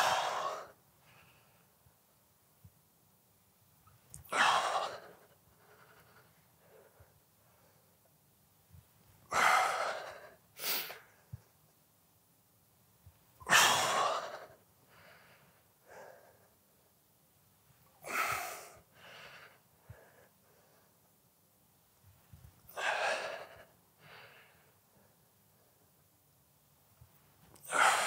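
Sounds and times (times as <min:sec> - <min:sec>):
man breathing hard: 0:22.7 - 0:25.8, 0:27.6 - 0:28.0.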